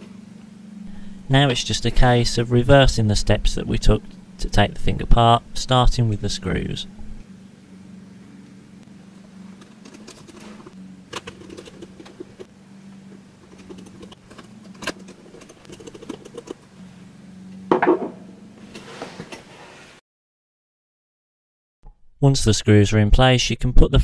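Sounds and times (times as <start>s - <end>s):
low hum: 0.0s - 18.8s
loud knock: 17.7s - 18.2s.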